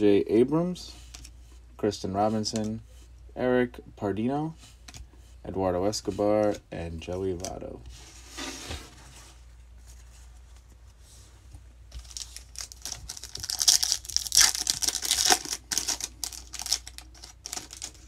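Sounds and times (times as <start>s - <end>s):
foil wrapper tearing and crinkling: 12.0s - 18.0s.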